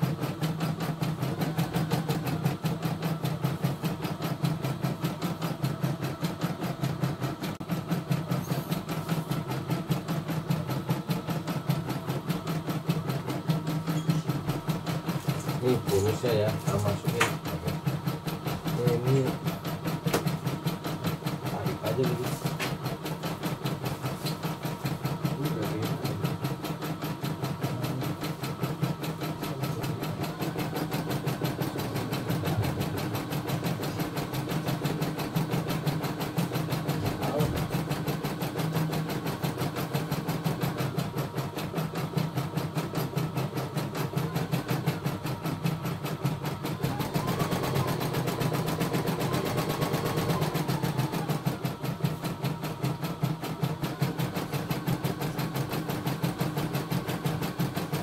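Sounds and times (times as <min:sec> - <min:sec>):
motor hum: 0:00.0 - 0:58.0.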